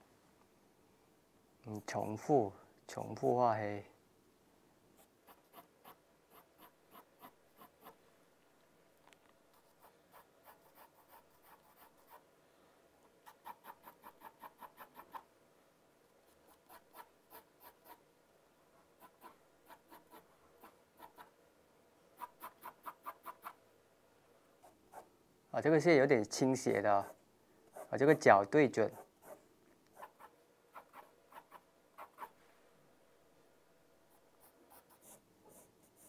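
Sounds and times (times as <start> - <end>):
pencil scratching on paper: 5.0 - 8.0, 9.5 - 12.2, 16.3 - 18.0, 34.1 - 36.0.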